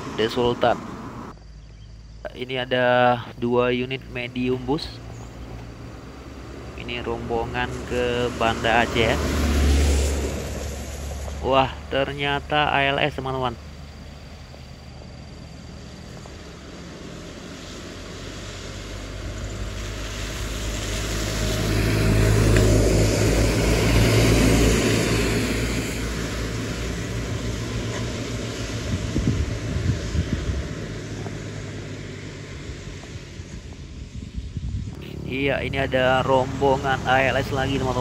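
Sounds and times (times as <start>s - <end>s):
bus diesel engine running: 0.0s - 1.4s, 2.3s - 38.0s
tyres hissing on wet road: 5.4s - 34.4s.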